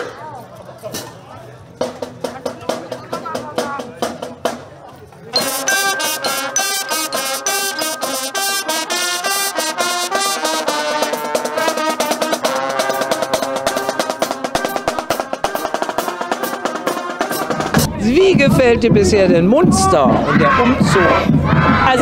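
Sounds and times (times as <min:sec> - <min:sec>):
snare drums: 0:01.8 - 0:04.8, 0:05.4 - 0:22.0
brass playing a tune: 0:05.3 - 0:17.9
bass drum: 0:17.4 - 0:22.0.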